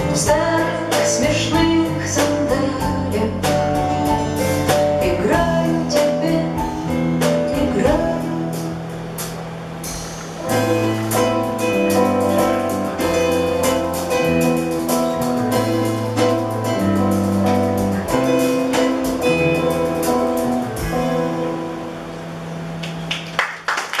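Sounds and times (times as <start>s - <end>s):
live band playing: 0.0s - 23.4s
people clapping: 22.8s - 24.0s.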